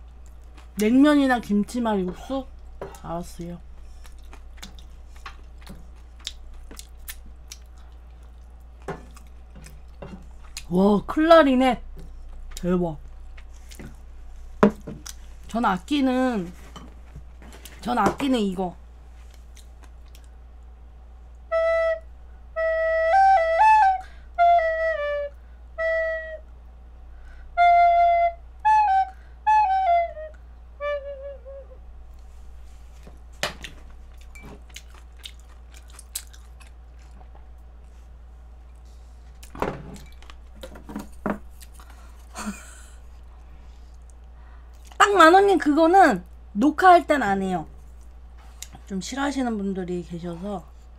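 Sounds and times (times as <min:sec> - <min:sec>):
recorder playing a tune: 0:21.5 - 0:26.5, 0:27.5 - 0:31.8.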